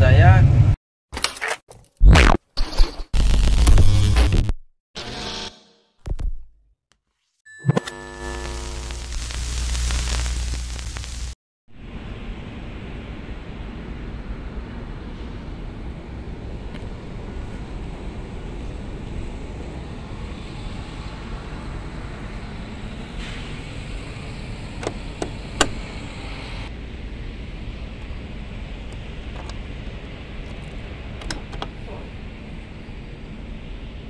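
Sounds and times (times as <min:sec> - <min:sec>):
steady low rumble: 0:08.8 - 0:34.0.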